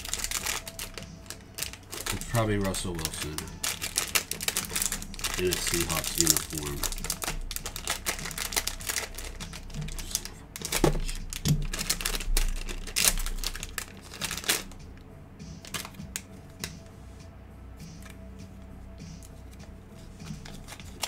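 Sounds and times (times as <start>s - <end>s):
foil wrapper crinkling and tearing: 0.0s - 14.8s, 15.6s - 16.7s, 20.3s - 21.0s.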